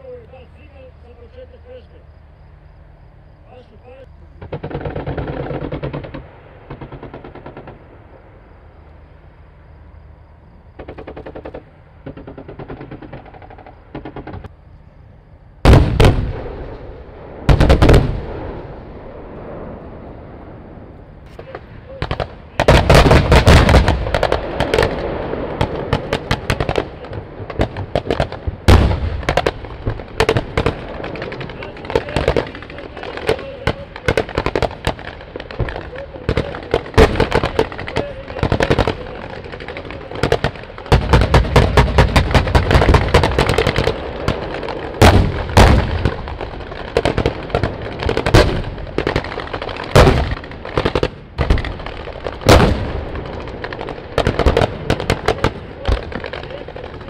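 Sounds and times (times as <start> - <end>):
small-arms and machine-gun fire: 4.4 - 8.0, 10.7 - 14.5, 15.6 - 18.8, 21.3 - 57.0
heavy booms: 15.6 - 57.0.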